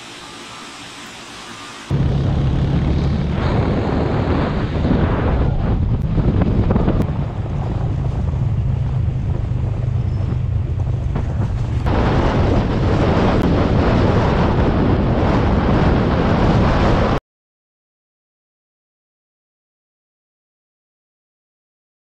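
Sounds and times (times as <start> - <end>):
road noise: 1.6 - 13.4
motorbike running: 1.9 - 14.0
wind buffeting microphone: 1.9 - 17.2.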